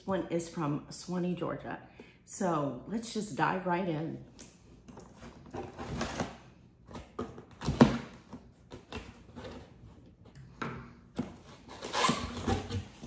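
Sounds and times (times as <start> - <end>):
box cutter slitting packing tape: 5.0 - 9.7, 11.4 - 13.0.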